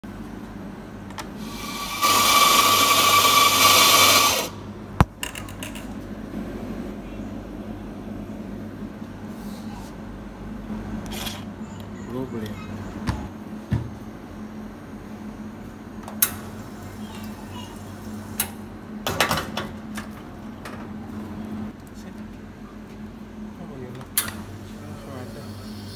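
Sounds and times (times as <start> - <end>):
espresso grinder whining: 1.4 - 4.6
steady low hum: 4.5 - 19.1.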